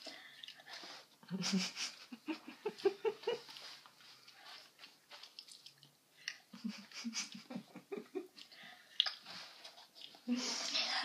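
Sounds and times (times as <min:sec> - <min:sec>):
girl biting and chewing: 0:03.4 - 0:07.4, 0:08.3 - 0:10.8.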